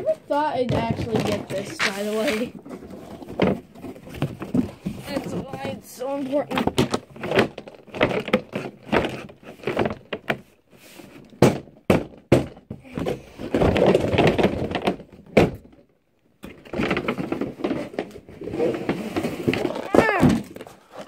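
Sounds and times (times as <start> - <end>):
cardboard box knocks and thuds: 11.4 - 15.7.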